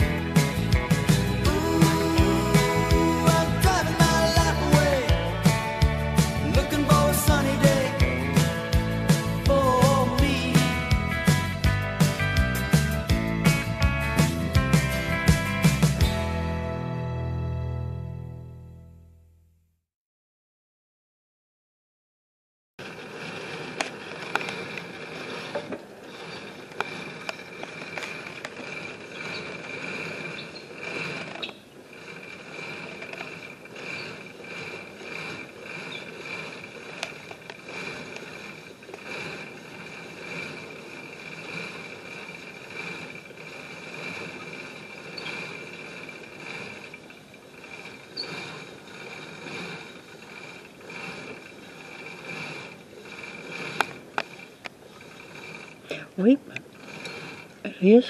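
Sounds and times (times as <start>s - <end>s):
machine high whine: 0.0s - 17.3s, 22.8s - 58.0s
sharp mechanical clicks: 22.8s - 57.7s.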